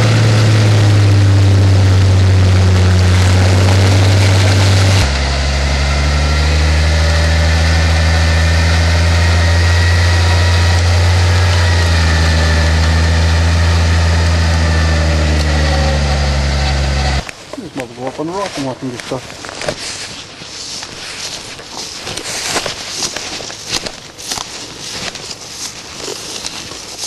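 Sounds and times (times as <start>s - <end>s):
truck engine idling: 0.0s - 17.2s.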